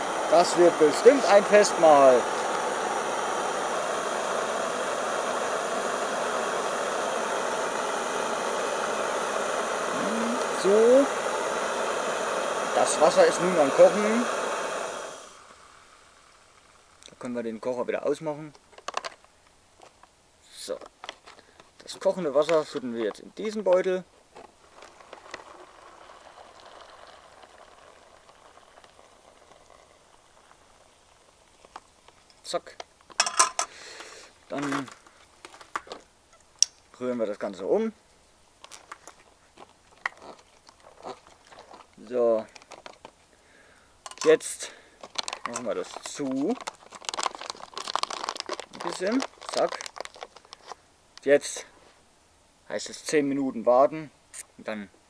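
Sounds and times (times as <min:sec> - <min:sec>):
gas stove hissing: 0:00.0 - 0:17.7, 0:24.5 - 0:32.1, 0:33.2 - 0:36.0, 0:43.3 - 0:46.8
water pouring into a pouch: 0:24.6 - 0:31.8, 0:40.0 - 0:43.0, 0:44.1 - 0:50.8.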